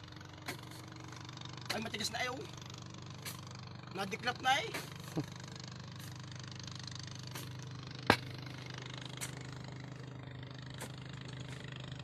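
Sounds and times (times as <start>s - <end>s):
low hum: 0.0s - 12.0s
pick striking hard ground: 4.6s - 5.2s, 7.3s - 9.6s, 10.7s - 11.8s.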